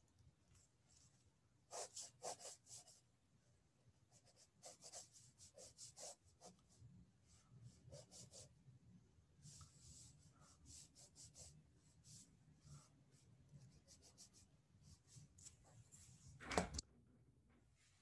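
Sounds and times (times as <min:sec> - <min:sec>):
pencil scratching on paper: 0:01.7 - 0:03.0, 0:04.1 - 0:06.8, 0:07.7 - 0:08.5, 0:09.4 - 0:15.6.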